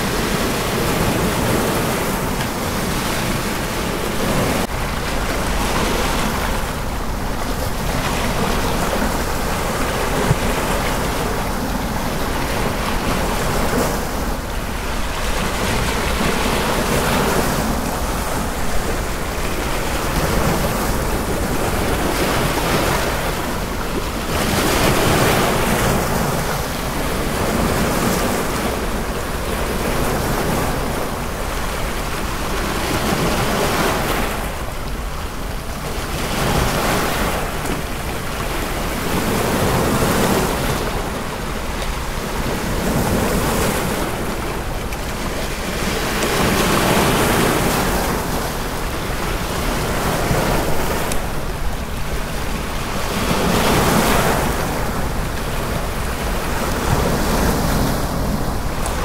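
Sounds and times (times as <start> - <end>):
ocean waves washing in: 0.0 - 59.0.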